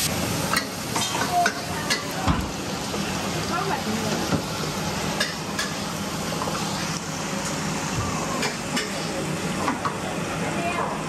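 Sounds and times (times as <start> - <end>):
stir-fry sizzling in a wok: 0.0 - 11.0
utensils clinking against wok: 0.5 - 2.2.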